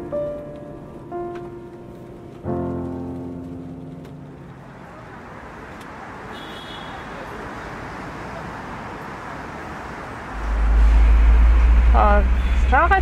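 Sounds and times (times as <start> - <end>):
cars passing hiss: 5.5 - 13.0
loud low rumble: 10.3 - 13.0.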